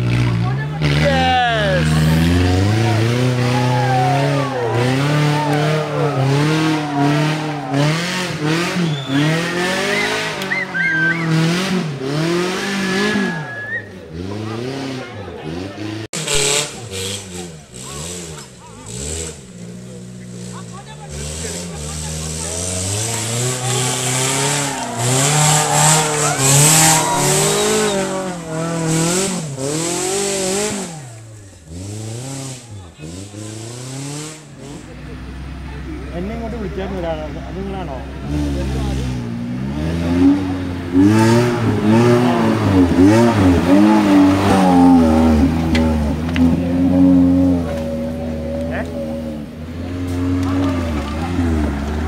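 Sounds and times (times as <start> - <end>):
jeep engine revving: 0.0 - 52.0
high whistle-like tones: 5.4 - 11.3, 12.6 - 14.0, 25.5 - 28.2.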